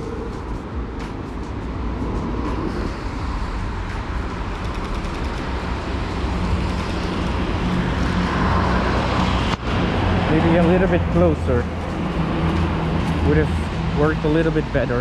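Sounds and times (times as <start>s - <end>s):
passing cars: 0.0s - 15.0s
vehicle engine hum: 0.0s - 15.0s.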